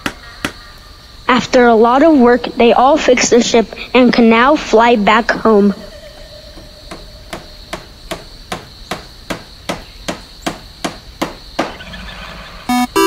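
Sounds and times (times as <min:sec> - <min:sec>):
short electronic beeps: 0:12.7 - 0:13.0.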